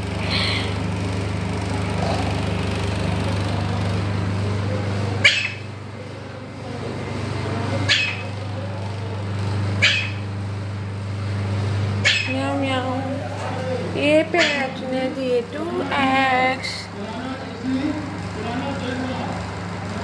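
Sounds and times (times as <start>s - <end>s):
steady low hum: 0.0s - 20.0s
short sharp animal calls: 5.2s - 5.6s, 7.9s - 8.3s, 9.8s - 10.2s, 12.0s - 12.3s.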